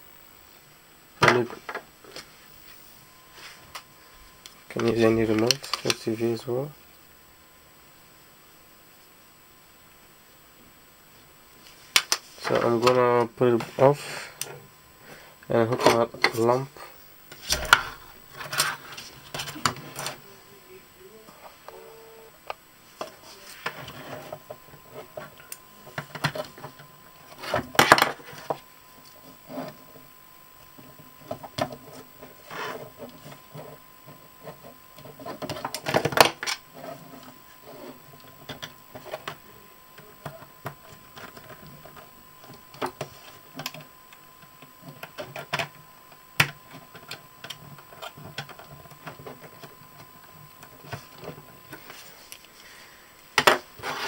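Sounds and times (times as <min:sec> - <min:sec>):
wire and board clicks and rustles: 0:04.7 - 0:06.0, 0:40.0 - 0:52.5.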